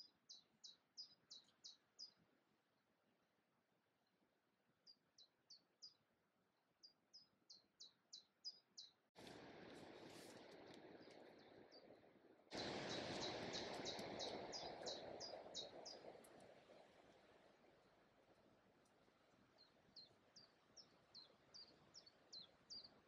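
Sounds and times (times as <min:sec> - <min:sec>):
small songbird singing: 0:00.0 - 0:02.2, 0:04.8 - 0:06.1, 0:06.8 - 0:09.1, 0:12.6 - 0:16.1, 0:19.6 - 0:23.0
outdoor background noise: 0:00.0 - 0:23.0.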